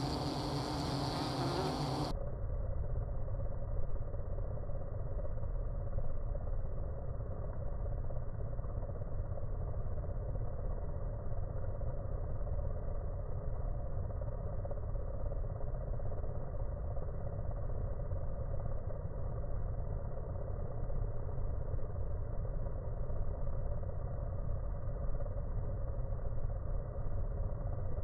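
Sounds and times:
slowed bees buzzing: 0.0 - 2.1.

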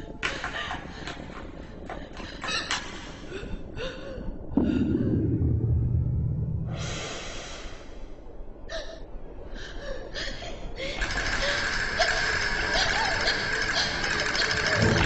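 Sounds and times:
loud low rumble: 4.5 - 8.6
person breathing hard: 6.7 - 11.6.

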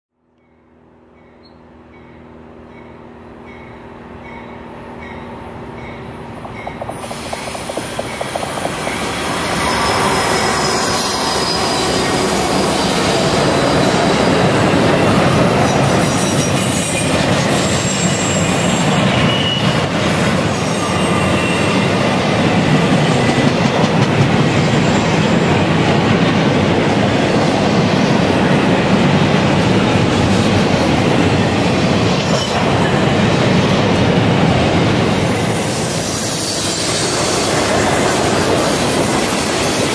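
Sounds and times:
freight train rumbling past: 0.2 - 39.9
wheels clattering on rail: 1.2 - 39.9
faint wheel squeal: 16.2 - 21.9.

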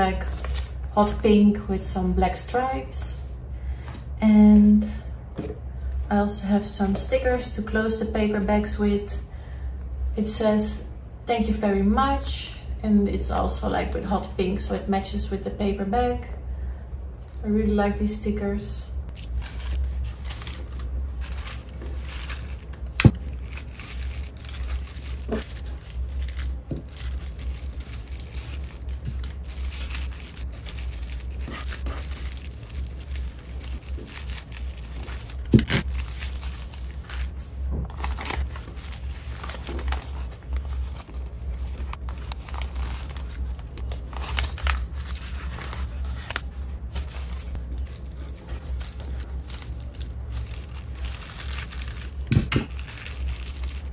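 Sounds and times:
low hum: 16.2 - 53.9
tissue paper rustling: 19.1 - 53.9.

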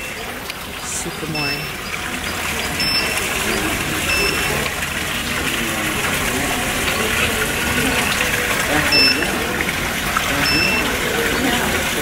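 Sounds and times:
faint voices: 0.0 - 12.0
short high beeps: 1.3 - 1.8, 2.8 - 3.3, 4.1 - 4.5, 8.9 - 9.3, 10.4 - 10.9.

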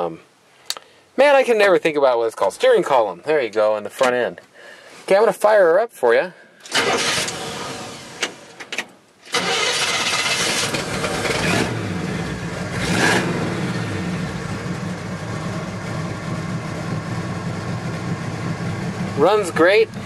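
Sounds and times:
engine starting and revving: 6.7 - 8.6, 9.3 - 14.9
engine idling: 9.4 - 20.0.

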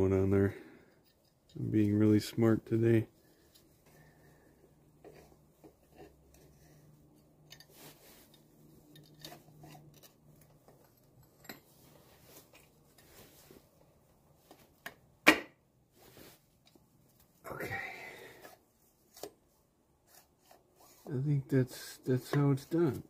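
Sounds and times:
metallic clicks and scrapes: 7.4 - 13.1.

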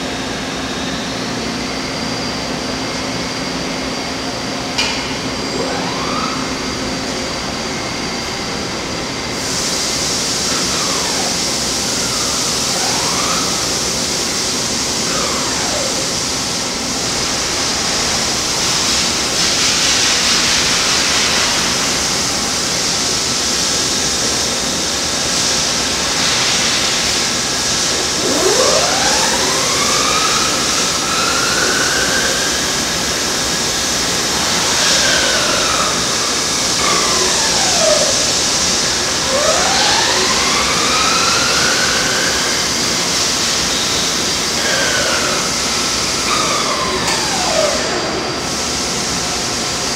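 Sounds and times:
boring mill hiss and hum: 6.9 - 49.9
motor whines: 10.4 - 18.2, 26.1 - 48.4.

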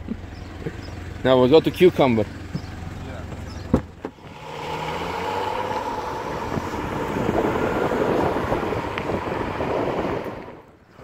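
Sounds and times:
car engine running: 0.0 - 11.0
wind rushing over microphone: 4.3 - 10.9.

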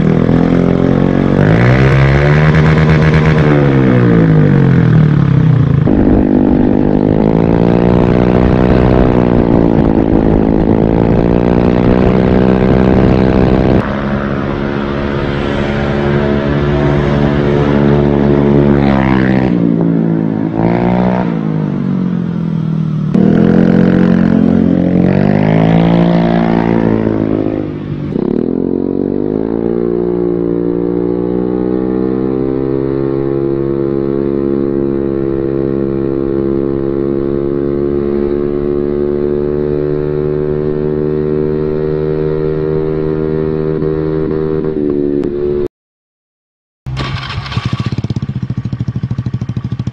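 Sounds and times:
scooter engine revving: 0.0 - 34.0, 46.9 - 49.9.

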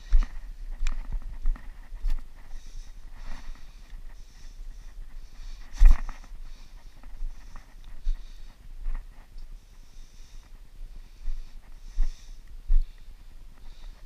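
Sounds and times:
footsteps on dirt and rock: 0.0 - 9.8
person breathing: 2.4 - 8.8, 9.5 - 14.0.

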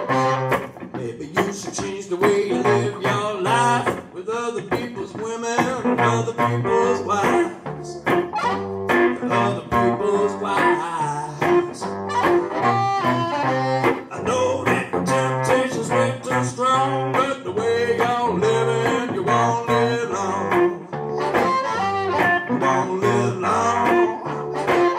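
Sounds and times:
harmonica: 0.0 - 0.8, 2.3 - 3.8, 6.0 - 16.9, 17.7 - 24.9
slide guitar: 0.0 - 24.9
steady beat: 7.2 - 10.8.

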